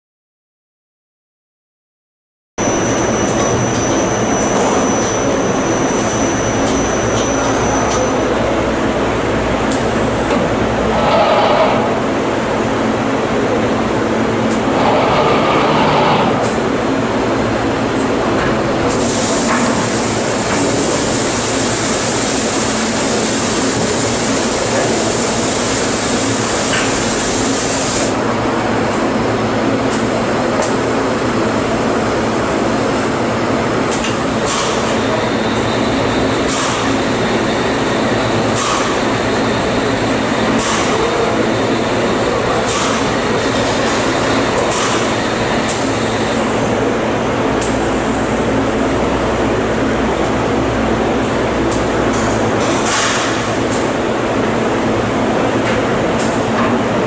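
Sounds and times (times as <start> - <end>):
machine humming and rushing: 10.0 - 17.9.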